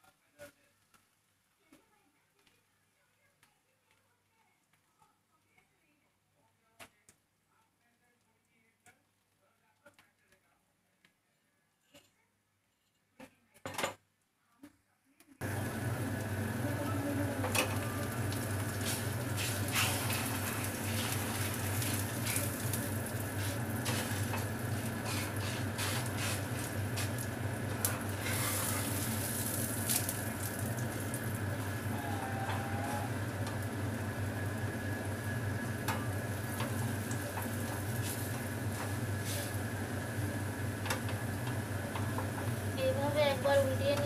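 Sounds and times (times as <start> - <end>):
dough sizzling in oil: 15.4 - 44.0.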